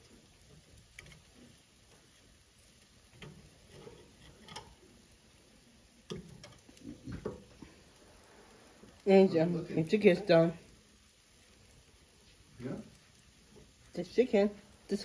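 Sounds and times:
metal tongs clicking on grill: 0.4s - 1.6s, 2.6s - 5.1s, 6.0s - 7.5s.

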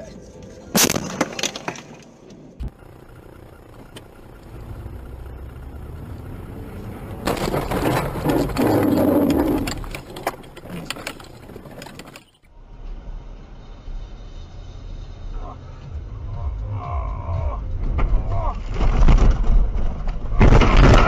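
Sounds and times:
car engine and road noise: 2.0s - 21.0s
car collision: 4.9s - 12.4s
debris crunching and clattering: 7.2s - 12.5s, 17.9s - 21.0s.

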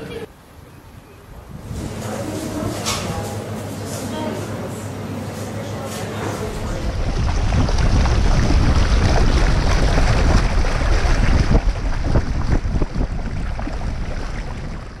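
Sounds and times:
wind buffeting microphone: 1.3s - 2.7s, 6.4s - 15.0s
water splashing along a hull: 6.0s - 15.0s.

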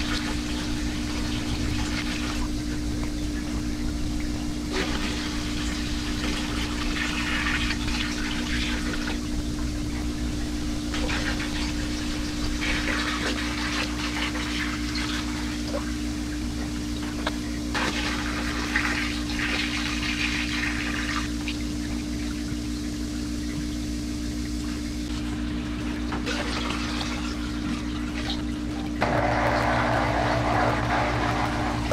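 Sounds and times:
steady low hum: 0.0s - 31.9s
water pouring into aquarium: 4.7s - 9.4s, 10.0s - 16.4s, 17.7s - 23.1s, 25.5s - 31.9s.

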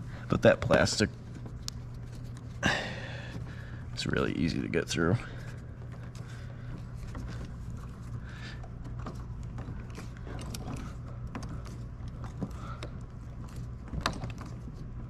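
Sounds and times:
steady low hum: 0.0s - 15.0s
tool clicks and plastic creaks: 8.6s - 14.9s.

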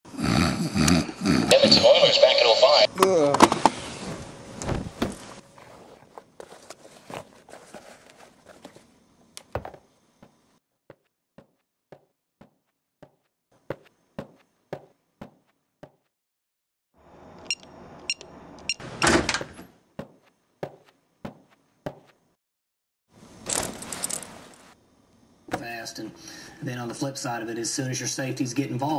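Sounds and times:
footsteps: 4.7s - 8.9s, 9.5s - 16.1s, 20.0s - 22.2s.

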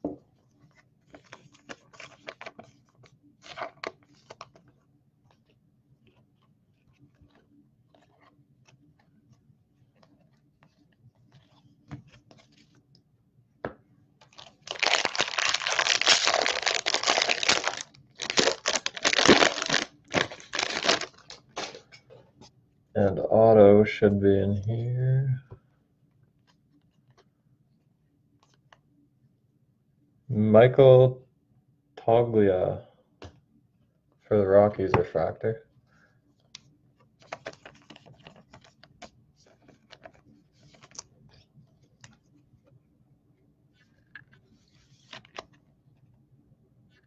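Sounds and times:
foil wrapper tearing and crinkling: 14.3s - 21.8s.

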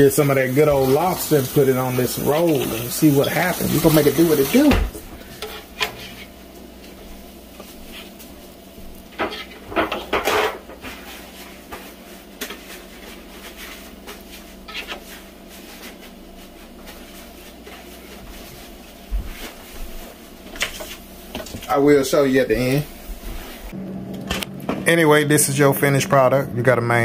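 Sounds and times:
dishes and utensils clattering: 9.1s - 10.8s.

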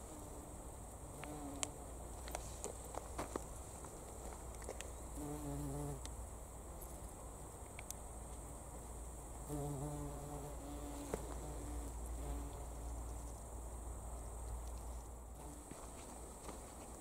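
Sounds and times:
insect buzzing: 0.0s - 2.3s, 4.9s - 7.2s, 8.8s - 14.3s, 15.3s - 16.5s.

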